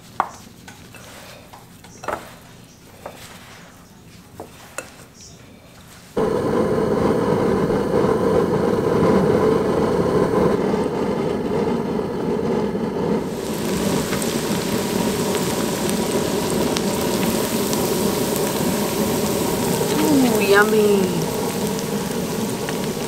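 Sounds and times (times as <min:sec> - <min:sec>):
food deep-frying in hot oil: 0:06.1 - 0:23.0
gas burner flame rushing: 0:06.1 - 0:23.0.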